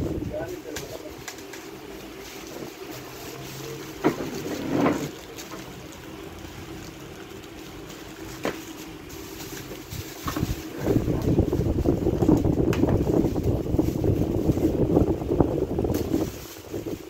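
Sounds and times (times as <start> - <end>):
plastic bags rustling: 0.0 - 17.0.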